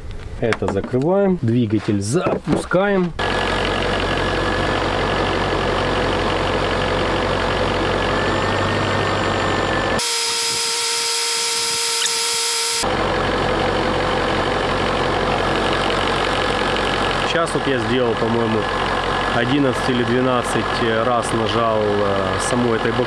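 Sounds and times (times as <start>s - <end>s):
car engine idling: 3.1s - 10.0s, 12.8s - 23.0s.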